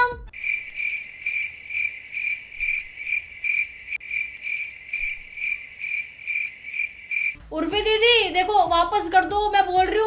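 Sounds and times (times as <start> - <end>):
crickets chirping: 0.3 - 7.4.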